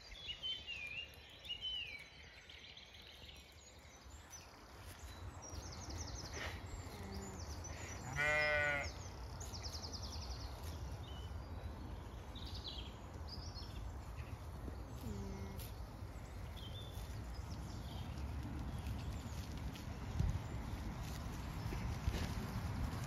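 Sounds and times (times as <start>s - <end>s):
songbirds trilling: 0.0s - 22.6s
sheep bleating: 7.9s - 9.0s.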